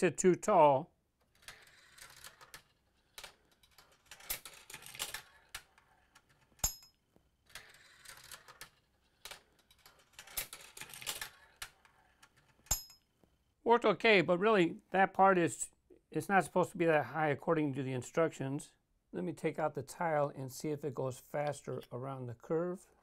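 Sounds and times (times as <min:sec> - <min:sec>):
marbles rattling on plastic track: 0:01.3 - 0:06.5, 0:07.5 - 0:12.6.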